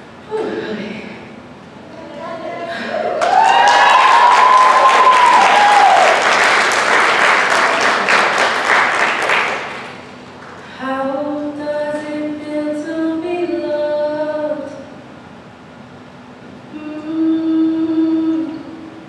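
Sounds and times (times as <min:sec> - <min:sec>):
audience applause and cheering: 0:02.9 - 0:10.6.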